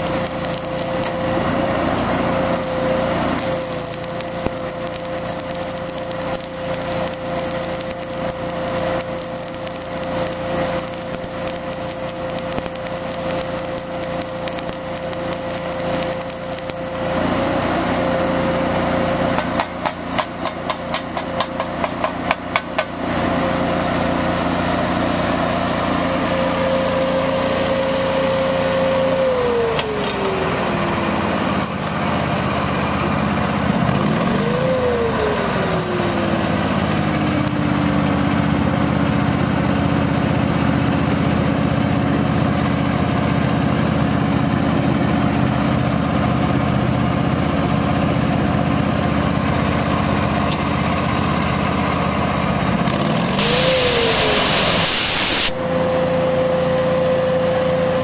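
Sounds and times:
welding arc crackling: 0.0 - 23.1, 25.1 - 39.5, 53.3 - 55.7
welder engine running: 0.0 - 58.0.

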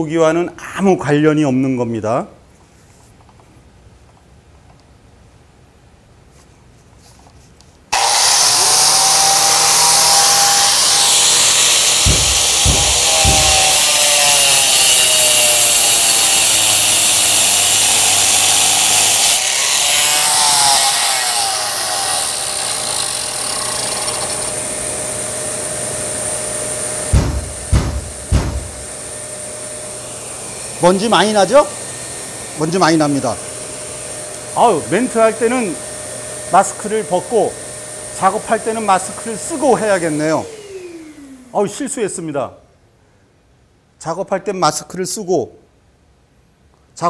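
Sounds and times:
vacuum cleaner running: 8.0 - 15.8, 23.6 - 41.9
angle grinder cutting stone tile: 8.0 - 29.4, 30.5 - 40.6
knocks: 12.0 - 13.9, 27.1 - 28.9.

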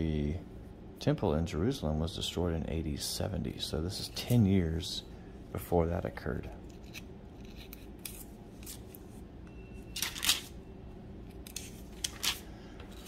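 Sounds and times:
paper pages rustling: 11.5 - 13.0.

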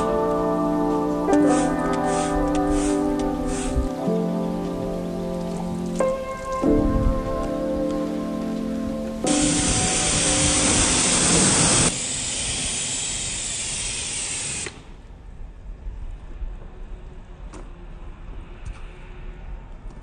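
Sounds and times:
water jet spraying: 1.2 - 4.4, 9.2 - 14.8.

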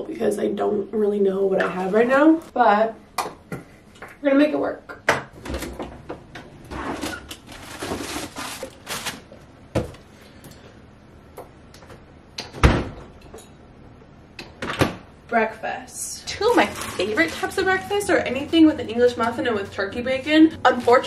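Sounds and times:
packages rustling and knocking: 6.8 - 10.0.

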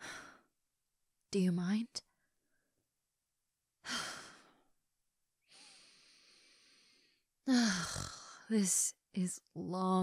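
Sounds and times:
woman breathing: 0.0 - 0.5, 5.5 - 8.4.

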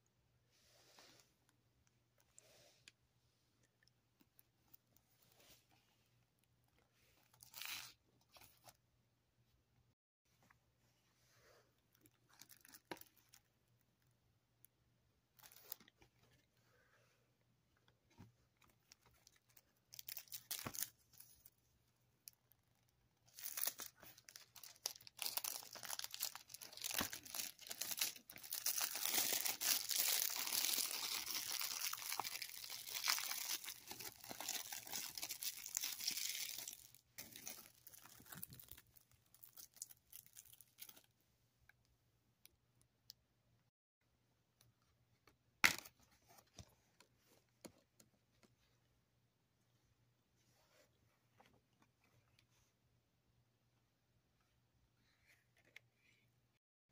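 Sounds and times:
plastic wrap crinkling and tearing: 19.2 - 20.9, 23.3 - 41.1.

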